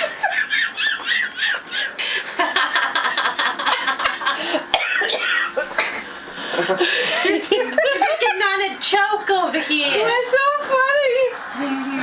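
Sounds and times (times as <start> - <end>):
person laughing: 0.0 - 4.7, 5.6 - 8.5.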